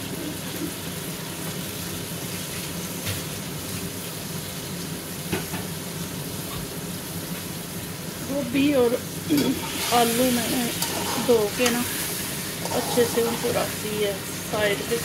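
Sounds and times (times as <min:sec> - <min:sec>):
masala sizzling in hot oil: 0:00.0 - 0:15.0.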